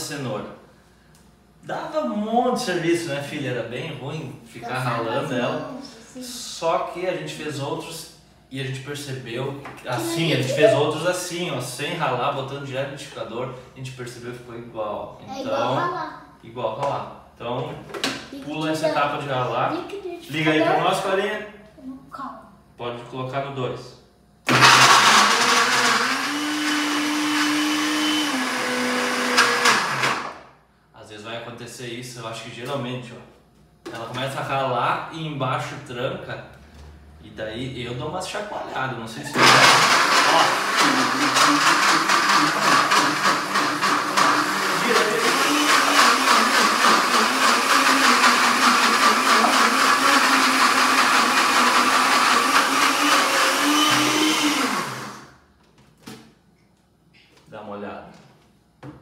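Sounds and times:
blender chopping carrots: 0:24.5 - 0:30.4, 0:39.3 - 0:55.3.

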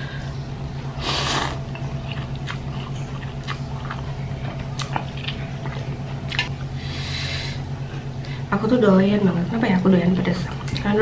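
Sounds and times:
person chewing noodles: 0:01.0 - 0:06.6.

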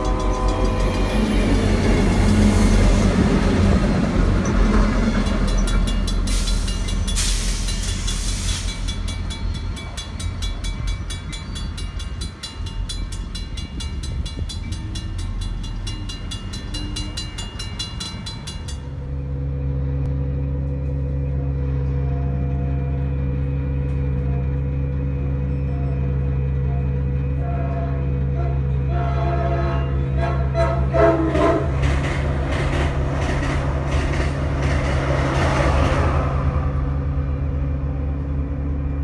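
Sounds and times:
diesel locomotives passing: 0:00.0 - 0:39.0
train wheels clicking over rail: 0:31.6 - 0:36.2.

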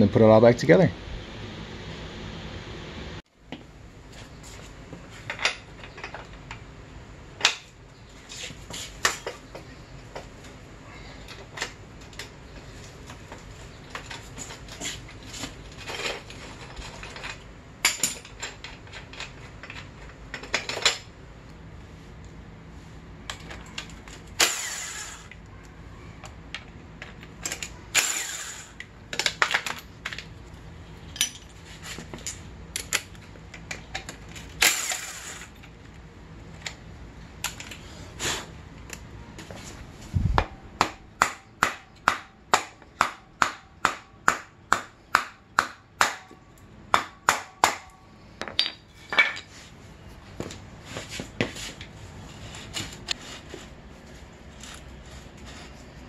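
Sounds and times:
metal clinks and knocks: 0:13.9 - 0:21.1, 0:31.0 - 0:35.8, 0:47.8 - 0:49.6
cordless power tool bursts: 0:24.4 - 0:25.4, 0:27.9 - 0:28.8, 0:34.6 - 0:35.6.

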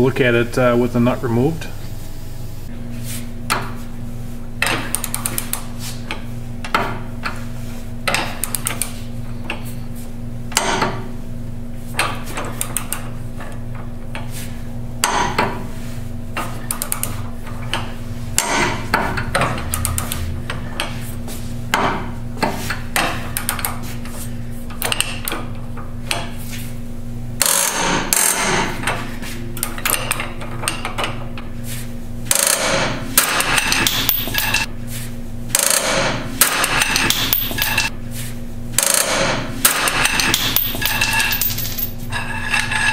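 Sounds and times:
steady low hum: 0:00.0 - 0:42.9
ratchet wrench clicks and knocks: 0:32.3 - 0:34.7, 0:35.5 - 0:37.9, 0:38.8 - 0:41.9.

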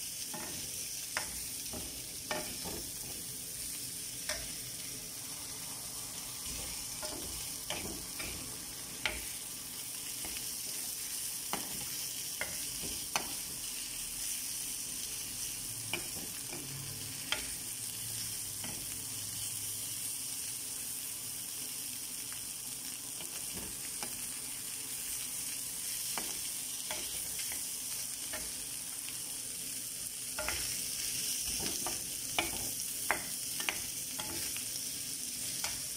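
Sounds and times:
shrimp sizzling in a frying pan: 0:00.0 - 0:35.9
spatula scraping a pan: 0:30.4 - 0:34.6.

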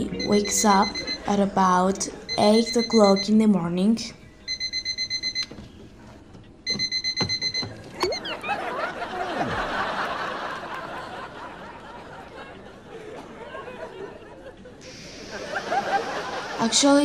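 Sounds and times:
alarm clock bell ringing: 0:00.0 - 0:03.4, 0:04.5 - 0:05.4.

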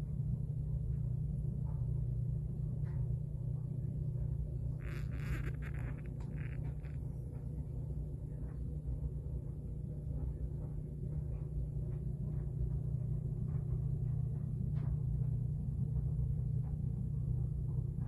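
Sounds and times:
low background hum: 0:00.0 - 0:18.0
faint scrapes: 0:04.8 - 0:07.1.

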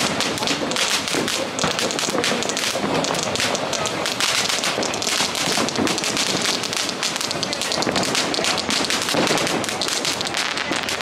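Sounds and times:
firework fountain hissing and crackling: 0:00.0 - 0:11.0.

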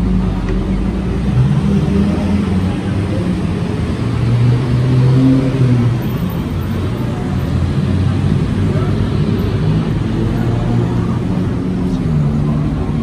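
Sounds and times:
passing traffic: 0:00.0 - 0:13.0
vehicle engines running: 0:00.0 - 0:13.0.

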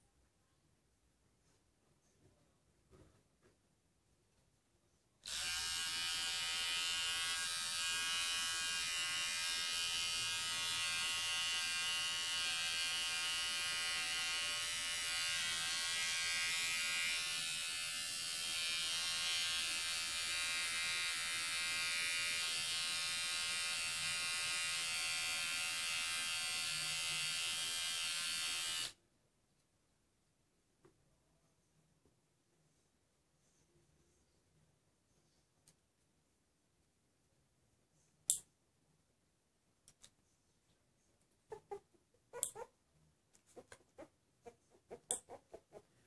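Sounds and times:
nail grinder buzzing: 0:05.3 - 0:29.0.

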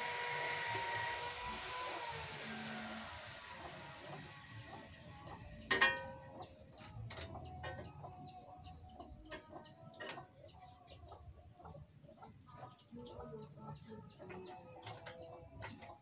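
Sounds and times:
chickens clucking: 0:03.3 - 0:16.0.

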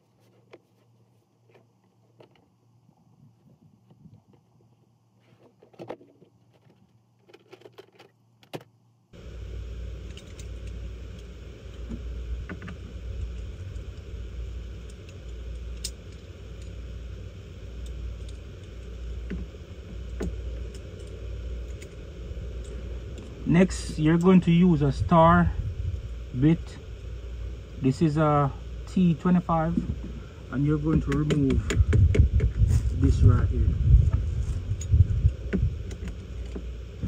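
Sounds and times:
low engine rumble: 0:09.1 - 0:37.0.

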